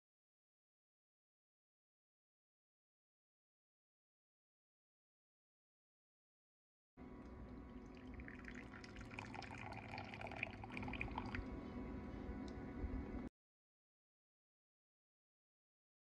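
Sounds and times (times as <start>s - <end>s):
low steady hum: 7.0s - 13.3s
coffee pouring into cup: 7.2s - 11.6s.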